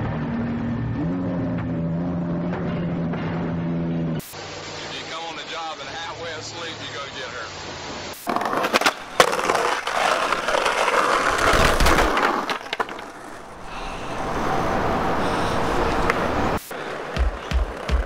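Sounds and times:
skateboard wheels on asphalt: 8.1 - 18.0
skateboard clacks: 8.3 - 13.4, 15.9 - 18.0.

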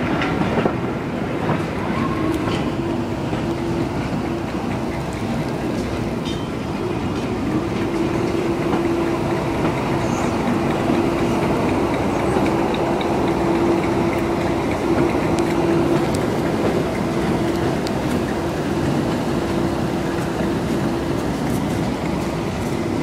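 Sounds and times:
train wheels rumbling on rail: 0.0 - 23.0.

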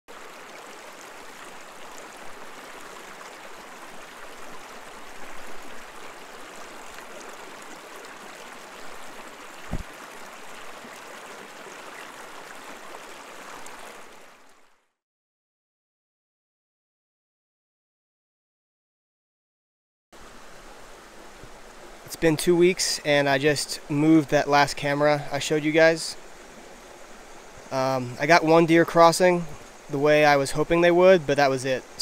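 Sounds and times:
creek babbling over rocks: 0.1 - 14.9, 20.2 - 32.0
low thump: 9.6 - 9.9.

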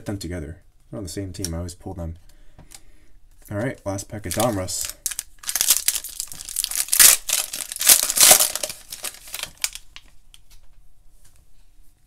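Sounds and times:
foil wrapper tearing and crinkling: 4.3 - 10.1.

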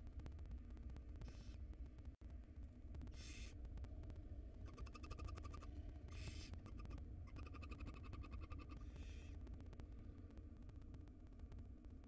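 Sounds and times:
owl chittering ticks: 4.7 - 8.8.

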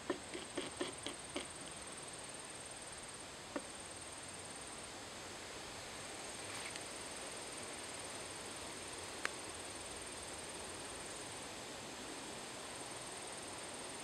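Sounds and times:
faint click: 9.2 - 9.4.

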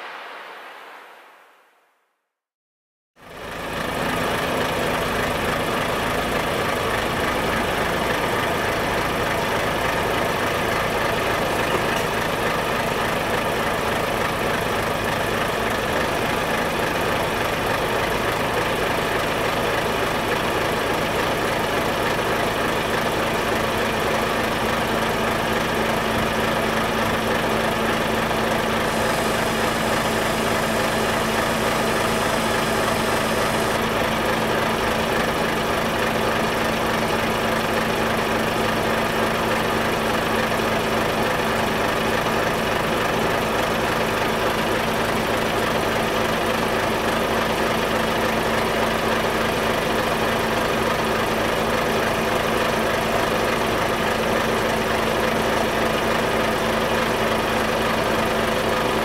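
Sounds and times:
faint high hiss: 0.0 - 2.1
diesel truck engine idling: 3.2 - 59.0.

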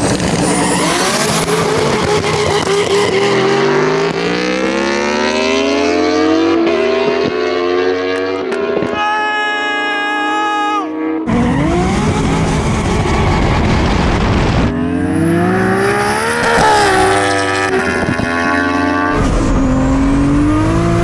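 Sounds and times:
engines at full throttle: 0.0 - 9.0, 10.1 - 21.0.

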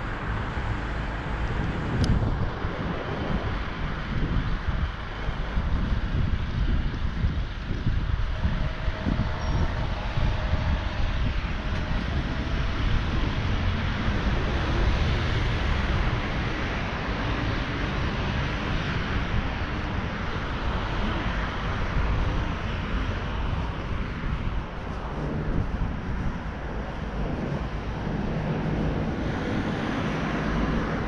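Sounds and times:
wind rumbling on microphone: 0.0 - 31.0.

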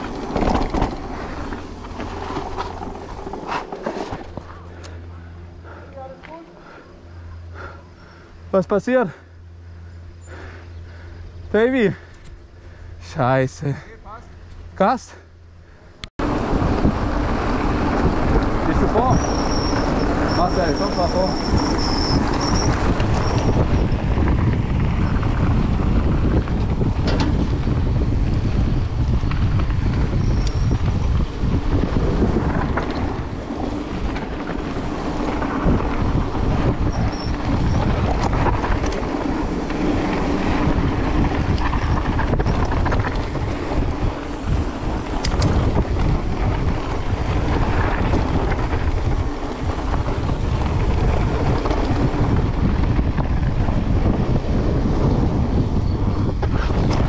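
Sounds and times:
wind buffeting microphone: 16.2 - 57.0.

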